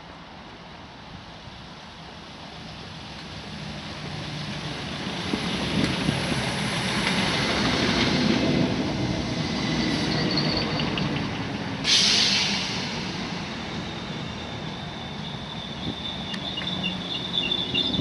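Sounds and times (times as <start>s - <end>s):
train wheels rumbling on rails: 1.5s - 18.0s
faint high squeal: 9.9s - 11.1s, 13.8s - 18.0s.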